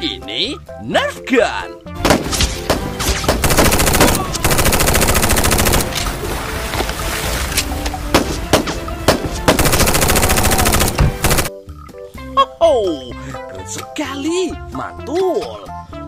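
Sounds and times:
background music: 0.0 - 16.0
rapid gunshots: 2.0 - 6.2, 8.2 - 11.5.

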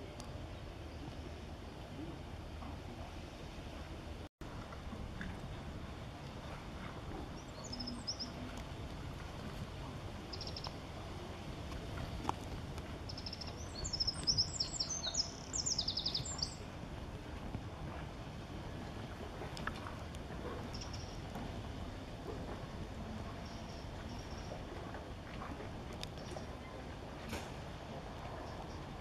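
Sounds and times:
low outdoor rumble: 0.0 - 29.0
songbird chirping: 7.3 - 8.6, 13.1 - 16.6.

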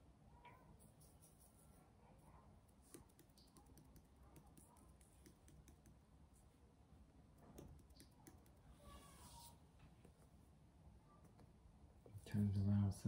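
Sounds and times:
distant children's voices: 0.1 - 1.0, 8.6 - 9.7, 10.9 - 11.5.

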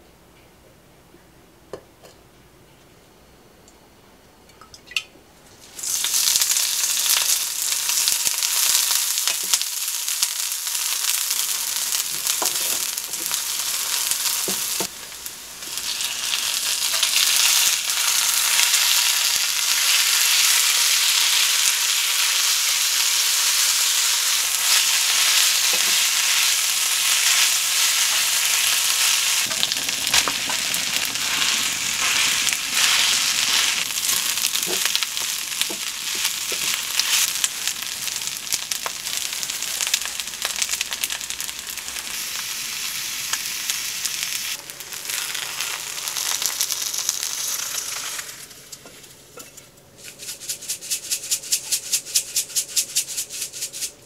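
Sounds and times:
oil sizzling in a frying pan: 5.6 - 48.8.

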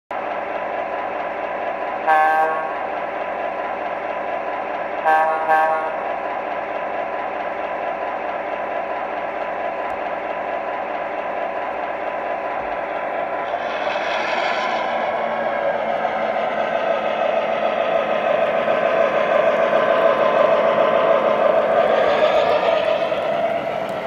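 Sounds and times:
model train running sound: 0.2 - 24.0
train horn: 2.1 - 2.8, 5.1 - 6.0.

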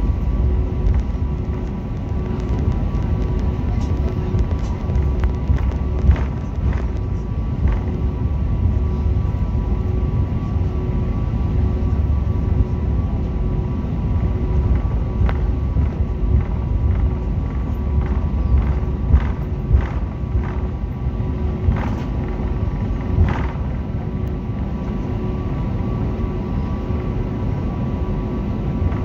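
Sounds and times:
faint steady hum: 0.0 - 29.0
jet engines idling rumble: 0.0 - 29.0.

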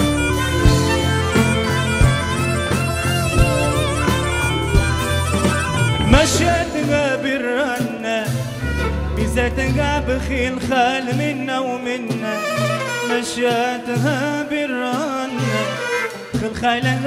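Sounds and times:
hand drum percussion: 0.0 - 9.4
folk-pop band playing: 0.0 - 17.0.

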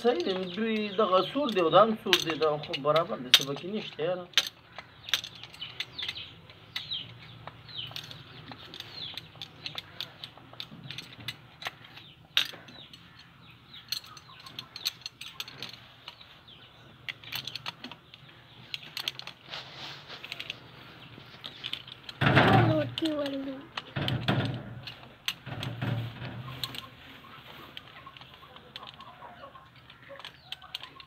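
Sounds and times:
wrench clinking on pipe fitting: 0.0 - 7.0.

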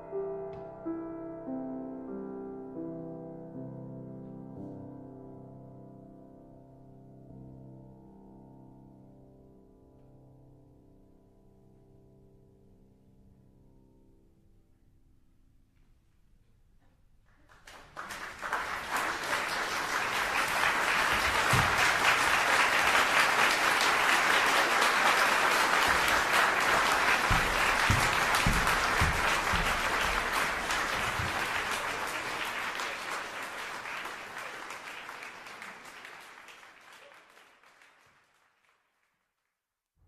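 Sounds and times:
crowd applauding: 17.4 - 39.1
low thumps: 26.7 - 31.6.

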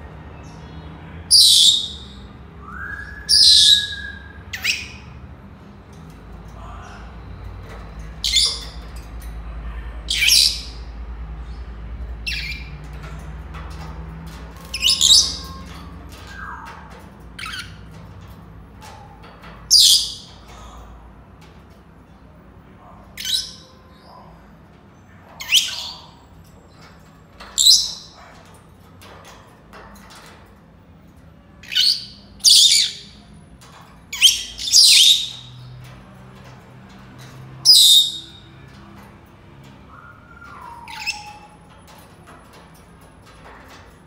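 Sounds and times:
parrots calling: 1.3 - 2.2, 2.8 - 5.2, 6.5 - 9.0, 12.2 - 13.2, 14.5 - 17.9, 25.3 - 26.2, 27.4 - 28.6, 34.1 - 36.6, 37.2 - 38.8, 39.9 - 42.1.

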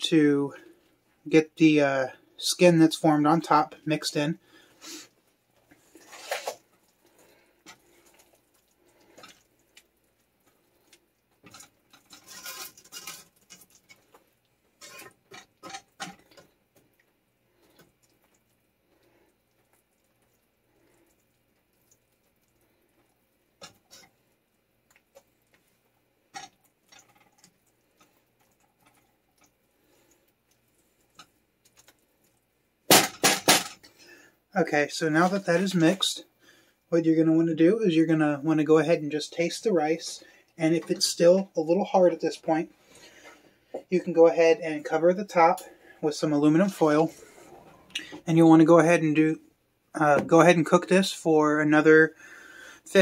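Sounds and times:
spatula scraping steel pan: 11.4 - 14.0, 14.8 - 16.2.

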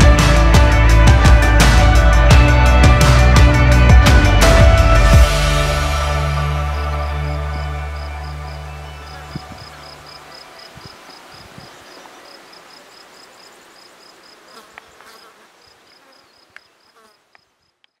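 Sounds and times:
insect high-pitched chirp: 7.0 - 18.0
faint buzzing hiss: 9.3 - 17.6.

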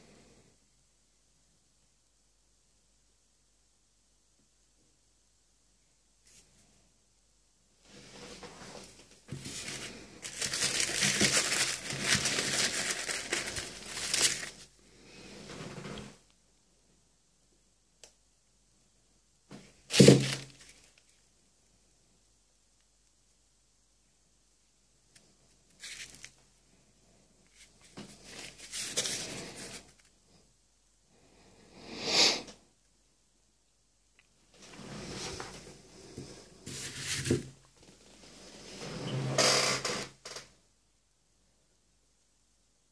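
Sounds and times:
tissue paper crinkling: 8.8 - 14.7, 19.9 - 21.2, 25.8 - 26.4, 27.5 - 30.1, 36.7 - 37.4.

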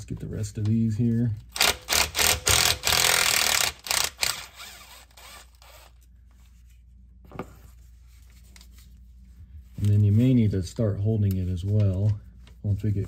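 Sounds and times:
impact driver rattling: 1.5 - 5.8.

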